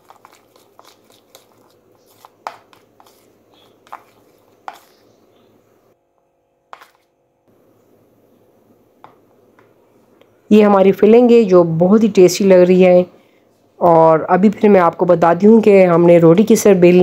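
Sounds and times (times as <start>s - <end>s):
spoon scraping plastic bowl: 0.0s - 5.2s.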